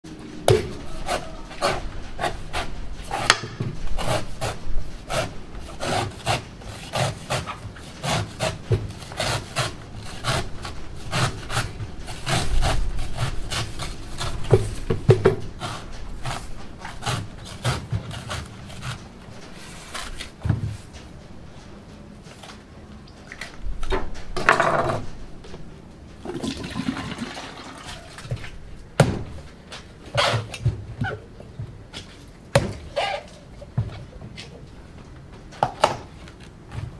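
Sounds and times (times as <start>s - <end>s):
knife chopping coconut husk: 0.5s - 19.0s.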